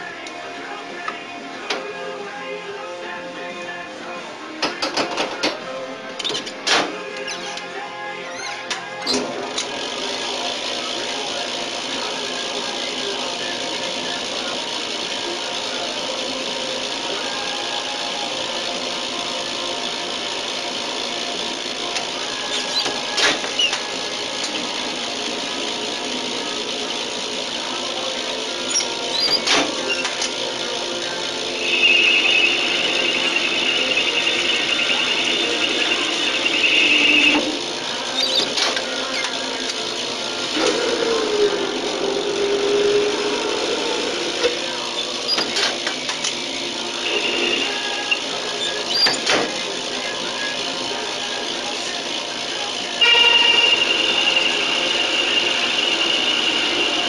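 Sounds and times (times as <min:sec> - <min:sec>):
lathe cutting metal: 0:07.5 - 0:57.0
high squeal from cutting: 0:31.5 - 0:37.4, 0:38.1 - 0:38.5, 0:47.0 - 0:49.2.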